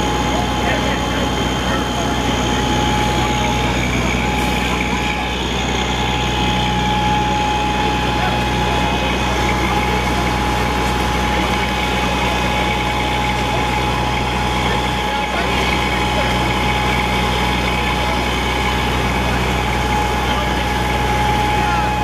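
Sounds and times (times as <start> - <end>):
pump engine drone: 0.0 - 22.0
steady high whine: 0.0 - 22.0.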